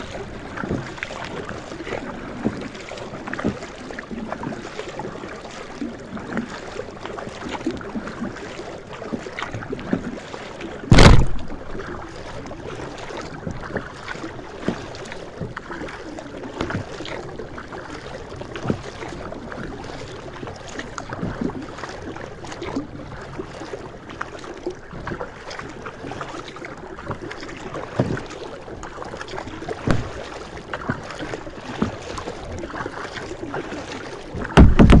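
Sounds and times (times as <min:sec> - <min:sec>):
paddle splashes and drips: 0:00.0 - 0:35.0
water washing along hull: 0:00.0 - 0:35.0
loud thump: 0:10.9 - 0:11.6, 0:29.9 - 0:30.2, 0:34.6 - 0:35.0.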